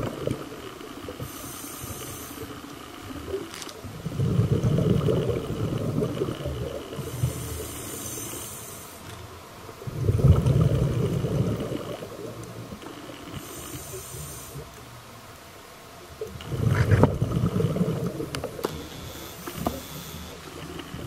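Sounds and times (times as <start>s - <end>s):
exhaled bubbles rumbling: 0.0s - 1.4s, 2.4s - 7.8s, 9.6s - 13.5s, 16.0s - 18.6s
regulator hissing inhale: 1.2s - 2.7s, 6.9s - 9.2s, 13.3s - 14.8s, 18.7s - 20.6s.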